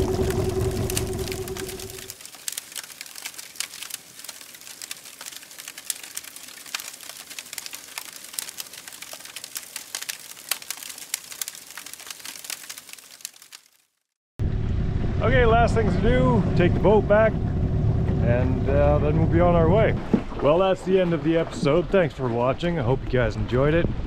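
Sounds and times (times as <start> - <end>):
motor humming: 0.0 - 2.1
faint crackling clicks: 0.1 - 13.8.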